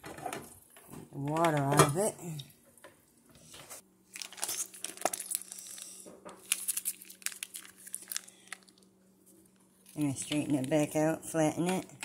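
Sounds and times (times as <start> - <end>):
foil pouch crinkling: 4.1 - 8.9.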